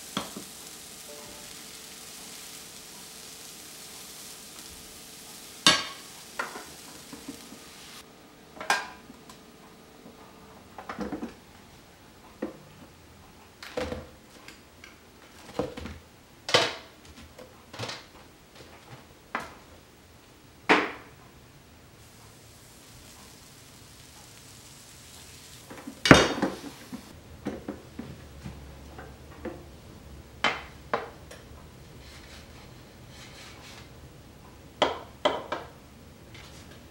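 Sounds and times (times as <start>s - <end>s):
batter hissing on waffle iron: 0.0s - 8.1s, 22.0s - 27.2s, 31.9s - 33.9s, 36.4s - 36.9s.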